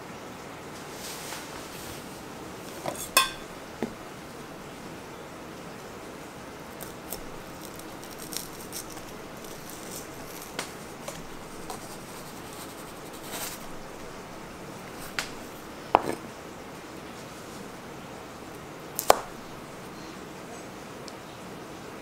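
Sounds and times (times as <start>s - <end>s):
low room hum: 0.0s - 22.0s
knife cutting on a cutting board: 2.7s - 4.0s, 6.8s - 16.3s.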